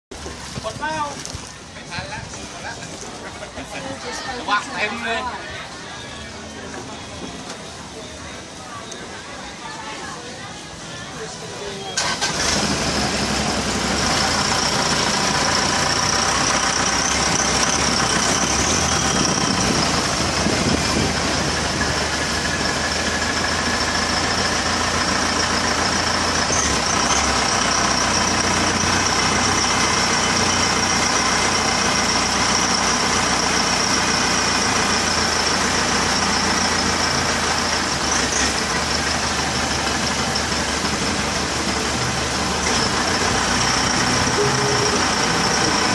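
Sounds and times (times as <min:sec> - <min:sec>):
boat engine running: 0:12.4 - 0:25.3, 0:39.7 - 0:45.9
high whine: 0:43.1 - 0:45.9.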